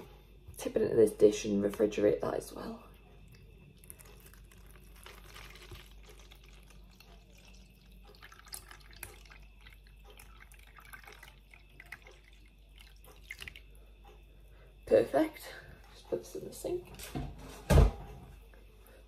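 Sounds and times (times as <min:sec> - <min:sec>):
small drips: 0:02.9 - 0:16.1
liquid trickling into plastic tub: 0:03.4 - 0:13.8.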